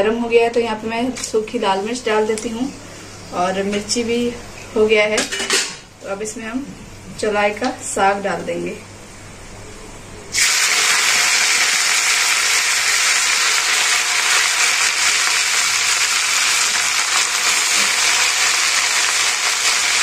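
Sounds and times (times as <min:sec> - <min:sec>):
greens sizzling in hot oil: 0:10.3 - 0:20.0.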